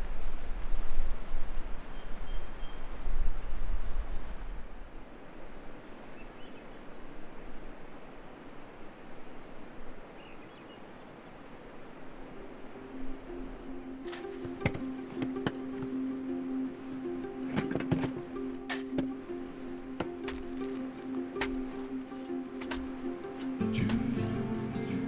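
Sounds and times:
creek rushing: 11.3 - 25.0
bird chirps: 12.4 - 17.5, 19.1 - 25.0.

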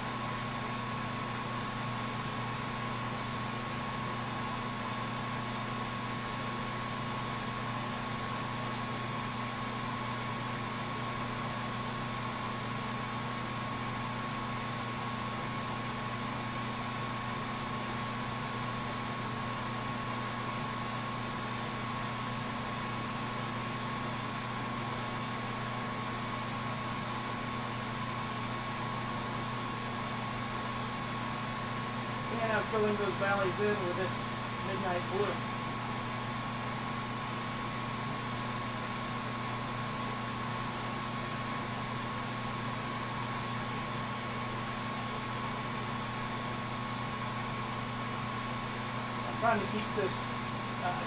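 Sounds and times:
torch flame hissing: 30.6 - 36.0, 48.6 - 51.0.

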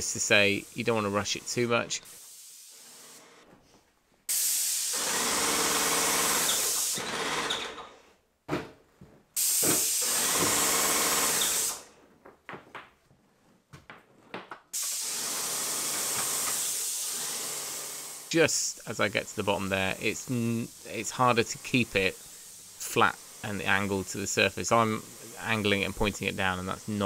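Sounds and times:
paint sprayer hissing: 0.0 - 3.4, 4.3 - 7.0, 9.4 - 11.9, 14.7 - 27.0
buzzing pump: 4.3 - 7.8, 9.4 - 11.8, 14.8 - 18.4.

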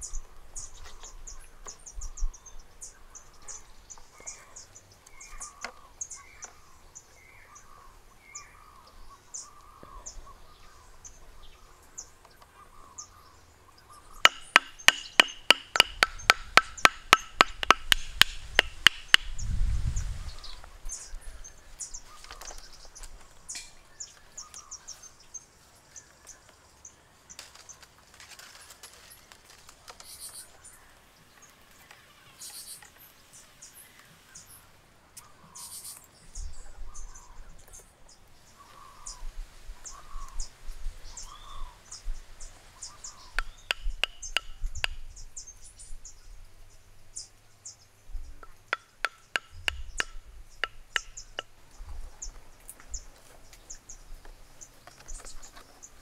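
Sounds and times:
insects and birds chirping: 0.0 - 56.0
wooden block knocking bamboo: 14.2 - 19.4, 43.3 - 45.1, 48.4 - 51.6.

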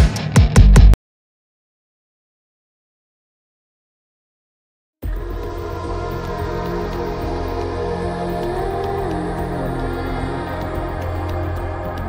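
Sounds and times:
calm ambient music: 5.0 - 12.0.

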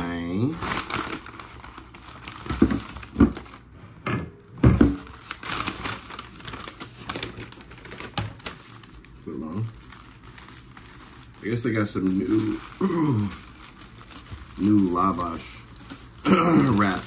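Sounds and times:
paper wrapper crinkling: 0.0 - 3.8, 5.0 - 17.0.

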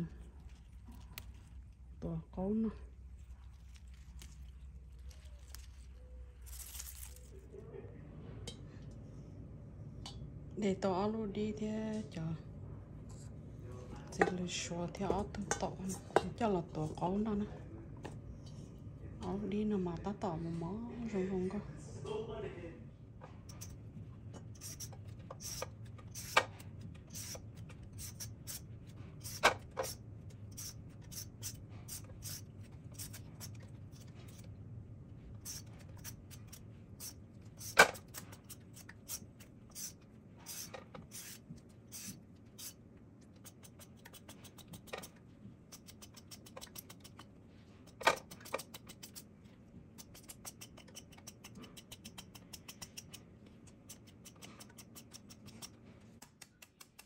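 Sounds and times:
peeler scraping cucumber skin: 24.5 - 34.5, 35.4 - 42.8, 43.4 - 45.1, 45.7 - 47.2, 47.8 - 49.2, 50.0 - 57.0.

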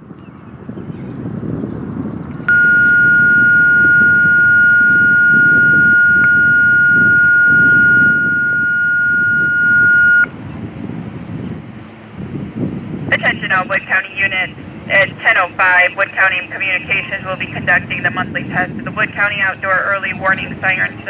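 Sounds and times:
wind rumble on microphone: 0.0 - 21.0
high-pitched radio attention tone: 2.5 - 10.3, 13.1 - 21.0.

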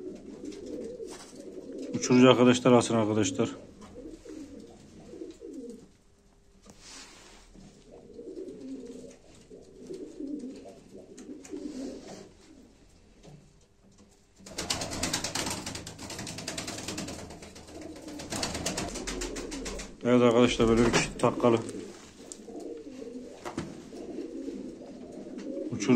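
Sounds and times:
pigeons cooing: 0.0 - 6.0, 6.8 - 25.9
loud crackling rustling noise: 13.9 - 25.6.

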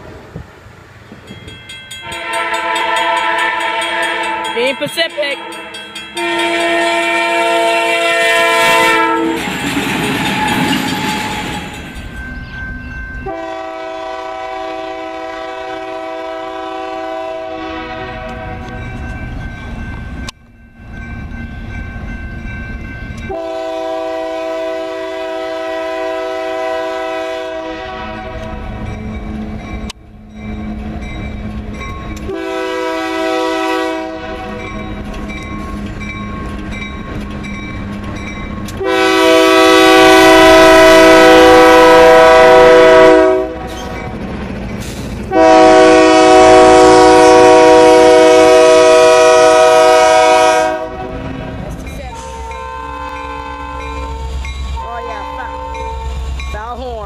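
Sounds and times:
rumble of locomotive and freight cars: 0.0 - 57.0
locomotive air horn blasts: 2.0 - 4.7, 6.2 - 9.6, 13.2 - 18.8, 23.3 - 28.7, 32.2 - 34.7, 38.8 - 43.7, 45.3 - 51.1, 52.1 - 56.3.

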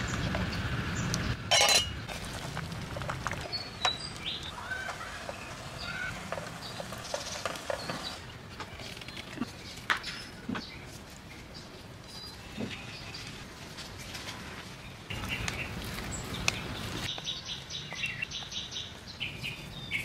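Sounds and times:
knocks and clinks against pot: 1.5 - 2.0.

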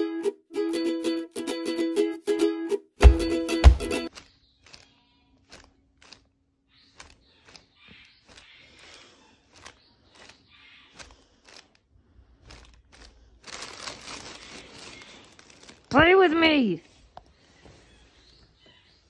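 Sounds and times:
nylon fabric rustling: 12.5 - 17.9.

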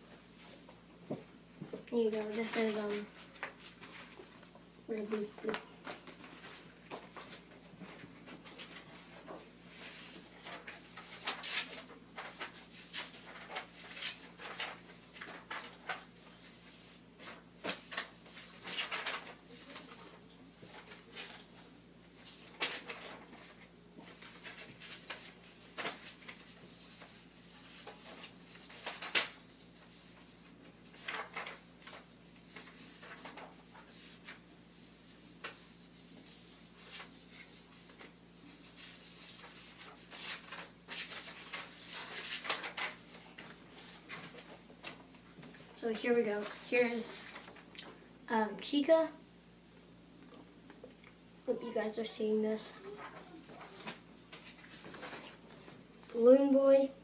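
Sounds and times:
paper rustling and sliding: 5.4 - 34.4, 35.1 - 44.6, 53.0 - 55.8.

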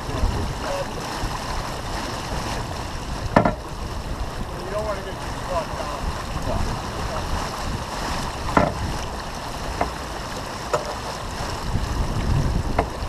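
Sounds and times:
wind and water rushing: 0.0 - 13.0
short sharp knocks: 3.4 - 3.6, 8.5 - 8.8.

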